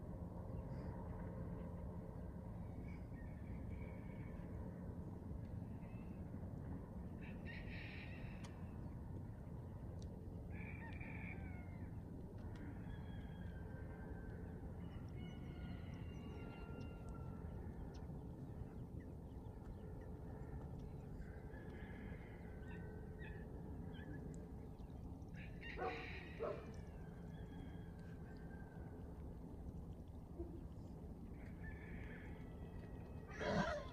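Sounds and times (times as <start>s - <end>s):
steady low rumble: 0.0s - 33.9s
distant bird calls: 14.8s - 27.8s.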